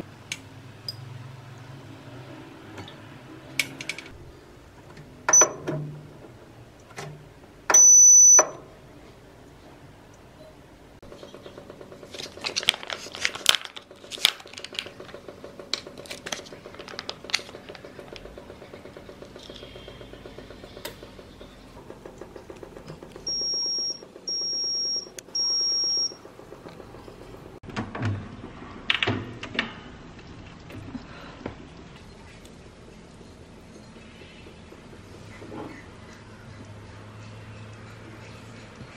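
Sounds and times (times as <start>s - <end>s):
long high-pitched beeps: 7.7s - 8.6s, 23.3s - 26.2s.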